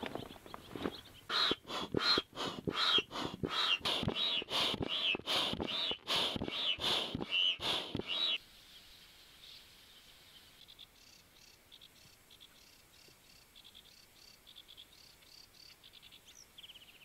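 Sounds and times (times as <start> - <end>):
foot pump puffing air: 1.3 - 8.4.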